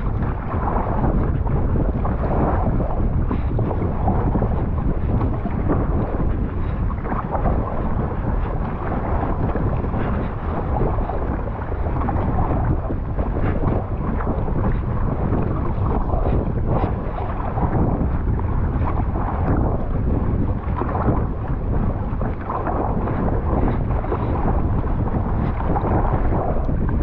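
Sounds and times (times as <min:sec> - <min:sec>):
water splashing around kayak: 0:00.0 - 0:27.0
wind rumbling on microphone: 0:00.0 - 0:27.0.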